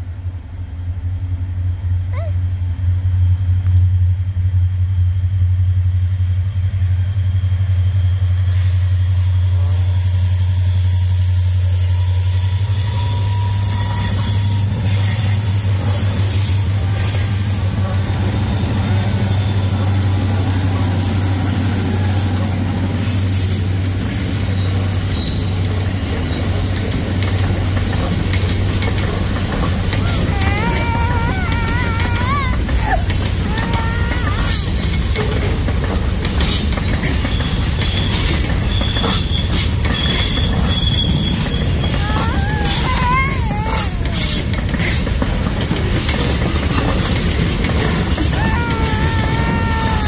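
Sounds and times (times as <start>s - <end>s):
diesel locomotive engine drone: 0.0s - 50.0s
wheel flange squeal: 8.5s - 19.8s, 29.0s - 45.0s
train wheels clattering: 22.6s - 50.0s.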